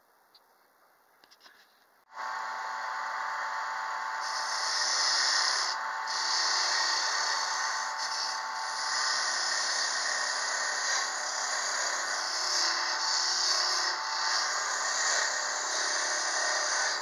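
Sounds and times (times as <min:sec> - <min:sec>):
wood lathe motor whir: 0:02.1 - 0:17.0
turning tool scraping wood: 0:04.2 - 0:17.0.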